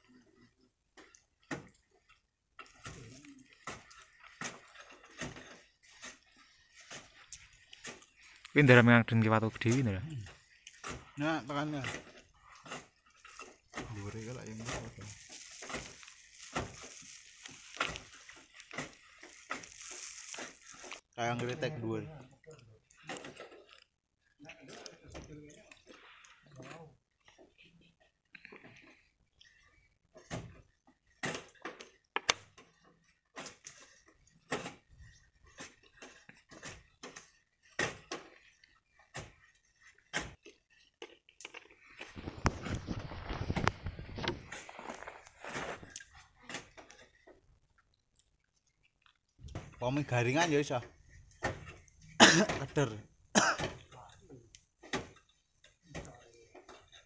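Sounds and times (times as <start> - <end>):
stones and sand pattering: 1.0 - 22.0, 28.6 - 57.0
running sand hissing: 12.8 - 21.0
close clicks and rustling: 24.6 - 53.0.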